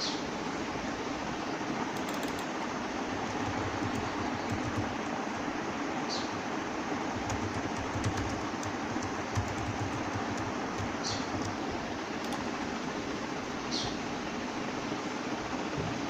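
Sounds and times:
keyboard keys clicking: 1.9 - 5.2, 7.1 - 12.6.

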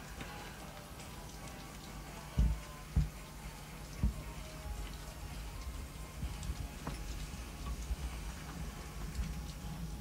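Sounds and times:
light hiss: 0.0 - 10.0.

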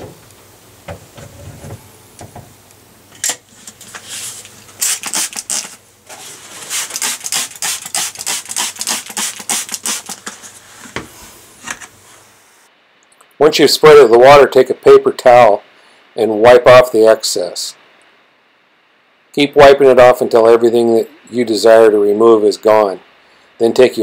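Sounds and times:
short hissy caulk strokes: 4.0 - 11.3.

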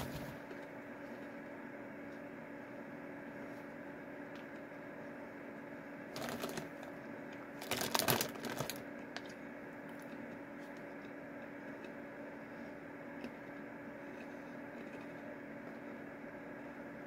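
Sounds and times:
plastic chip bag rustling: 6.1 - 6.7, 7.6 - 8.8.

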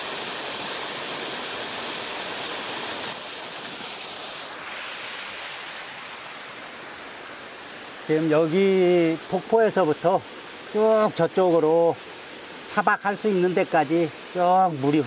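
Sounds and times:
waterfall splashing into pool: 0.0 - 7.0.

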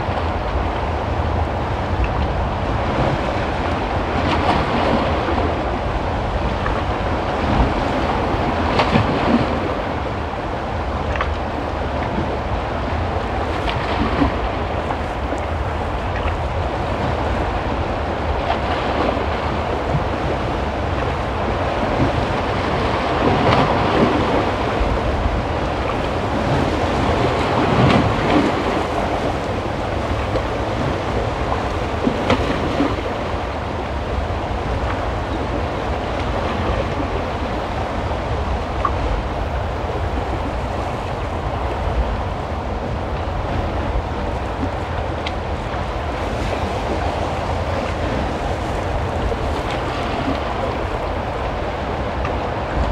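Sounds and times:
wind buffeting microphone: 0.0 - 52.9.

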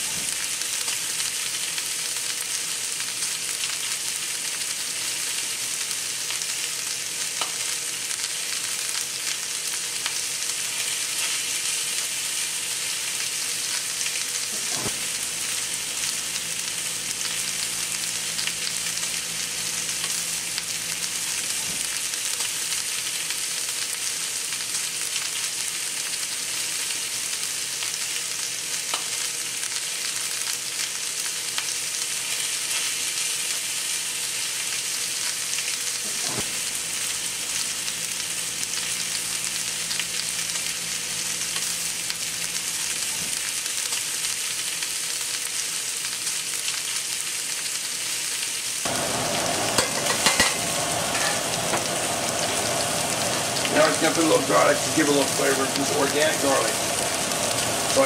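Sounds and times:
steaks sizzling in skillet: 0.0 - 58.0
metal tongs clack: 49.8 - 50.6.

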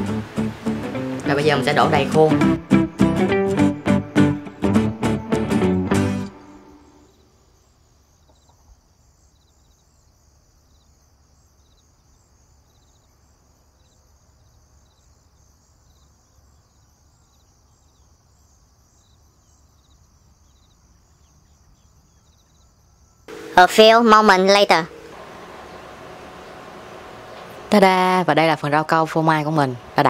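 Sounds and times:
insects trilling: 6.3 - 30.0
faint high-pitched drone: 23.3 - 26.6.

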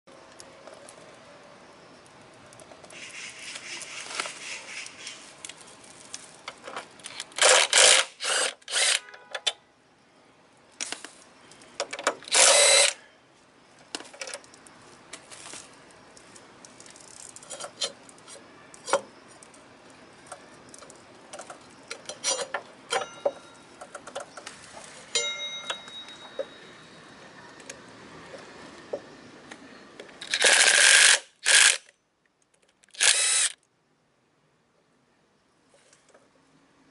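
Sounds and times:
cordless power driver: 7.4 - 9.0, 12.3 - 13.0, 33.0 - 33.6
tools and metal parts clinking: 16.6 - 19.6, 20.3 - 26.7.

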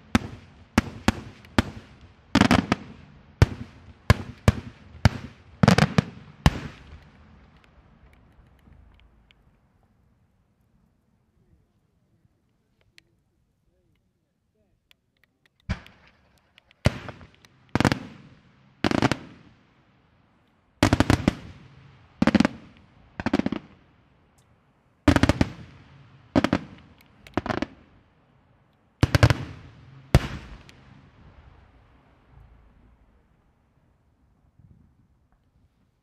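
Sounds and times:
fireworks bursting in loud bangs: 0.0 - 7.0, 15.7 - 19.5, 20.8 - 23.7, 25.1 - 27.9, 29.0 - 30.9.

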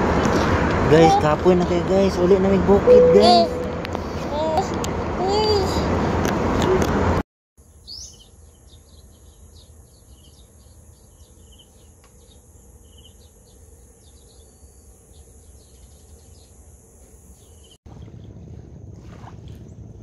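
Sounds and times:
birds chirping: 0.2 - 2.2
insects droning: 7.6 - 19.0.

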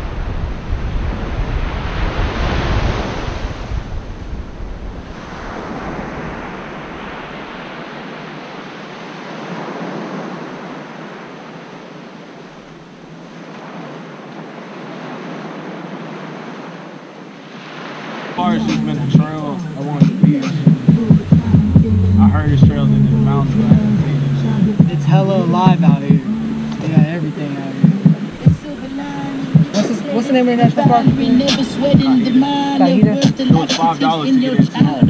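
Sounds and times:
wind rumble on microphone: 0.0 - 8.8, 18.4 - 29.8
surf washing onto beach: 0.0 - 35.0.

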